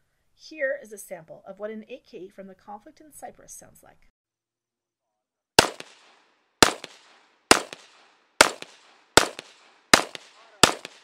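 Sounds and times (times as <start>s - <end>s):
rifle shots with echo: 5.6s - 11.0s.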